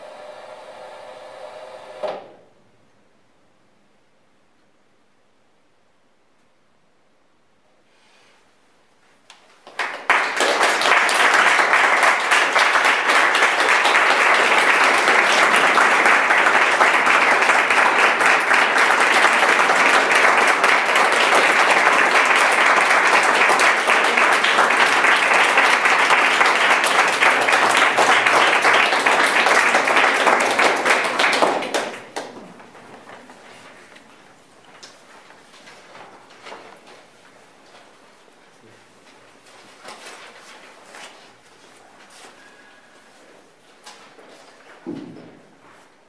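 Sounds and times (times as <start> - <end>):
audience applauding: 9.6 - 34.2.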